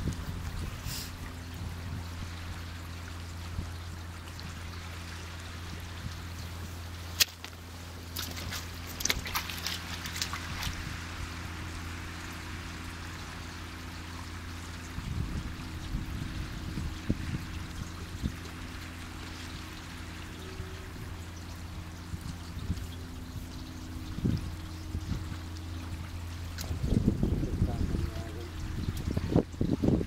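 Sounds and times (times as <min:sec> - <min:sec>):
constant low hum: 0:00.0 - 0:30.0
small waves lapping over rock: 0:00.1 - 0:15.0.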